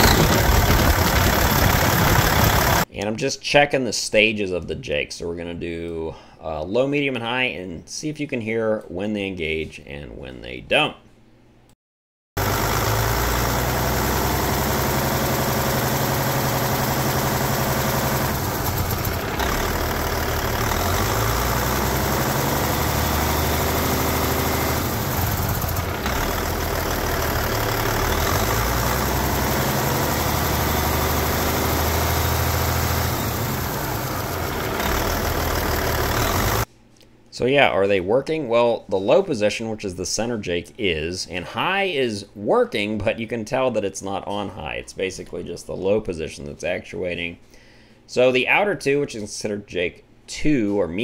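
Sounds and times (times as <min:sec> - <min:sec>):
engine brake engaging: 0:00.0 - 0:02.8
diesel engine idling loudly: 0:00.0 - 0:02.9, 0:12.4 - 0:36.7.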